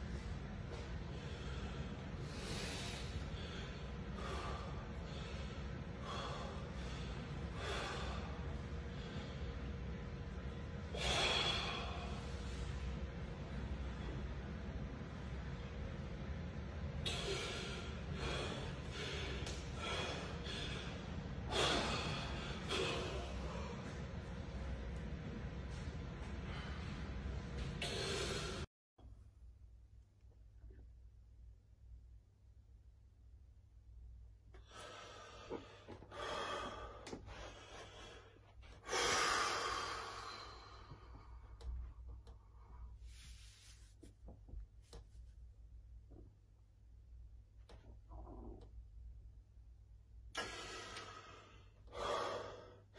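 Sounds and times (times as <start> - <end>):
person breathing hard: 0.7 - 9.7, 10.9 - 13.0, 17.0 - 24.2, 26.3 - 28.7, 34.6 - 43.8, 50.3 - 52.9.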